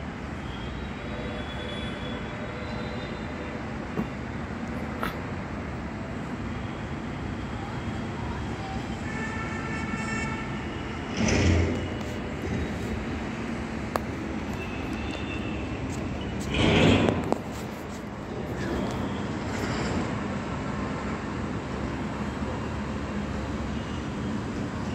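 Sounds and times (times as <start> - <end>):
road traffic: 0.0 - 24.9
vehicles passing close: 3.2 - 24.9
vehicle horn: 9.0 - 10.8.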